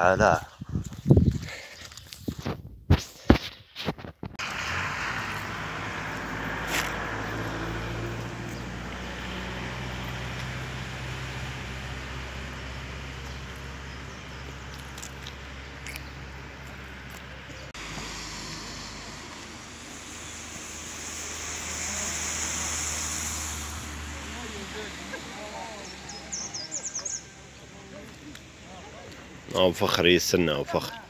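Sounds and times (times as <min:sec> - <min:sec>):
outdoor rumble and hiss: 0:04.4 - 0:31.0.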